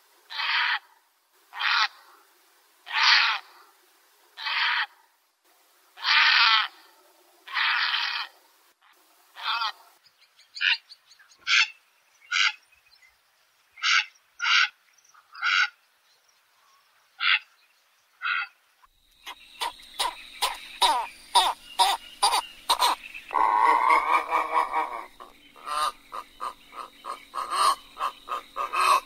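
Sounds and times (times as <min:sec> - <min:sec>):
faint steady hum: 0:00.0 - 0:15.2, 0:15.8 - 0:29.0
heron calls: 0:19.2 - 0:29.0.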